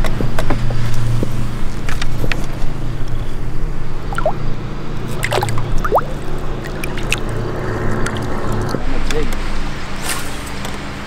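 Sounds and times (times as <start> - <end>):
bubbly plinks: 4.1 - 4.4, 5.1 - 7.3
water dripping and plopping: 4.1 - 4.4, 5.1 - 7.4.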